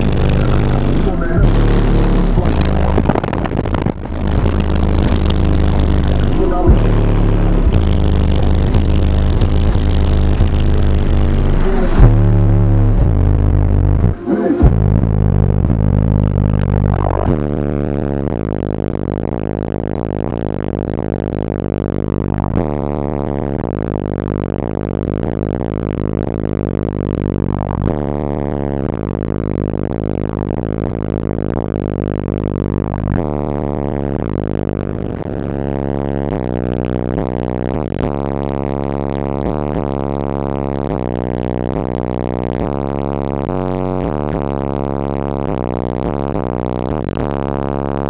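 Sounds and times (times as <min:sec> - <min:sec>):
bass-heavy music through subwoofers: 0:00.0 - 0:48.0.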